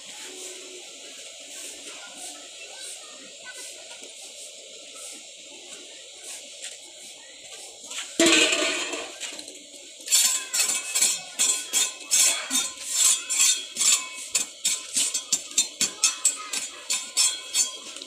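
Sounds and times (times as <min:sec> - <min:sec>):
metal tool scraping concrete: 0:08.2 - 0:09.4, 0:10.0 - 0:18.0.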